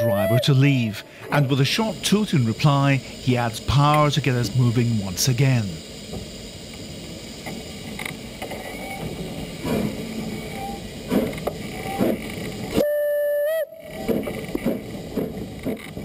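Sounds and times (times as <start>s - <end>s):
steam whistle blast: 0.0s - 1.9s, 10.4s - 10.9s, 12.8s - 14.2s
steam locomotive exhaust chuffs: 0.0s - 16.0s.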